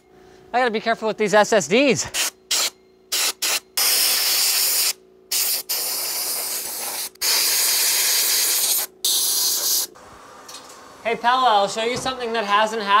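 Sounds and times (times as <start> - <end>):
compressed air blasts from blow gun: 2.1 - 9.9.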